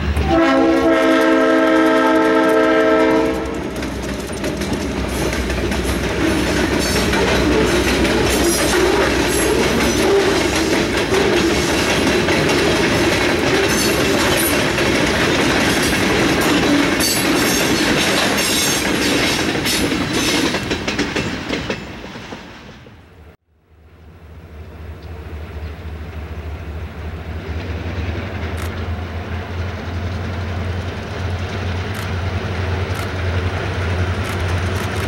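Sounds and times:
train wheels clattering over rail joints: 0.9s - 23.0s.

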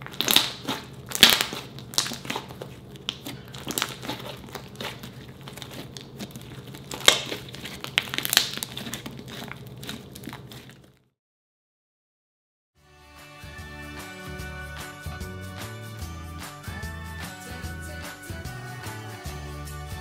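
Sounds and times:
slime squeezed by hand: 0.0s - 11.0s.

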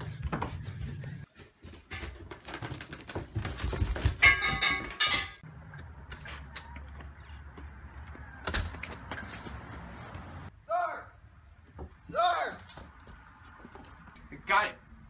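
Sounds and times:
feet thumping down stairs: 0.0s - 5.0s, 6.0s - 10.4s.

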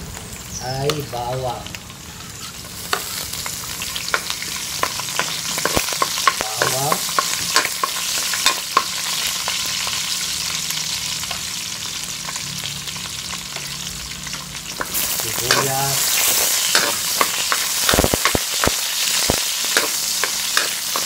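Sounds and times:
garlic sizzling in oil: 0.0s - 21.0s
metal ladle scraping wok: 14.3s - 21.0s.

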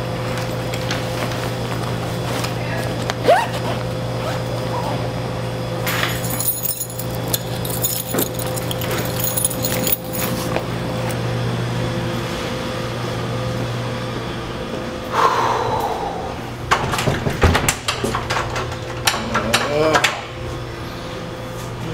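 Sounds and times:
steady electrical hum: 0.0s - 21.9s
small clicks and jingles: 6.0s - 10.6s.

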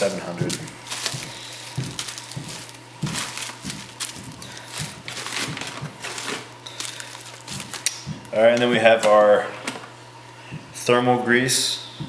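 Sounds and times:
bubble wrap crinkling: 0.0s - 8.8s
faint steady hum: 0.0s - 12.0s.

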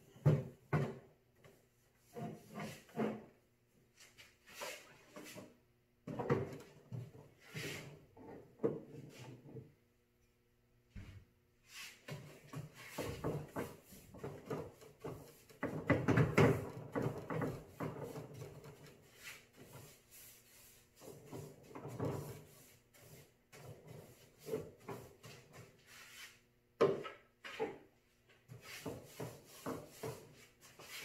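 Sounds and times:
paintbrush brushing on wood: 17.7s - 26.4s, 28.5s - 31.0s.

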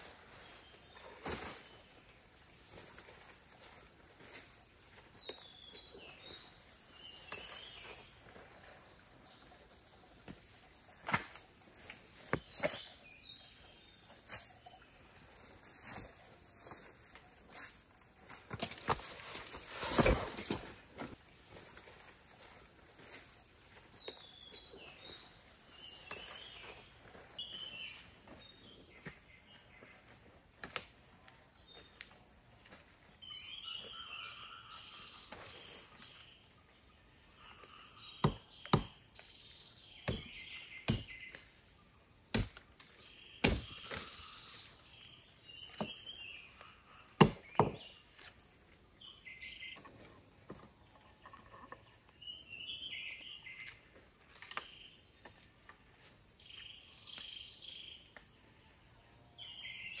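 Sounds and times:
birds singing: 0.0s - 60.0s
hand tool striking wood: 38.2s - 39.0s, 40.0s - 41.2s, 42.3s - 42.7s, 43.4s - 44.0s, 47.2s - 47.9s.

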